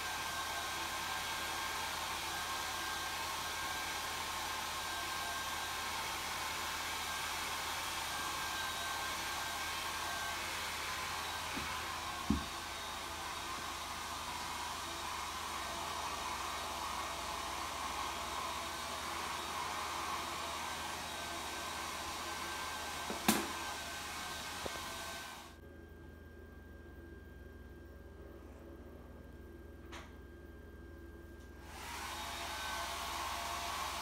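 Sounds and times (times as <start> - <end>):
electric blower hissing: 5.8 - 25.5, 31.6 - 34.0.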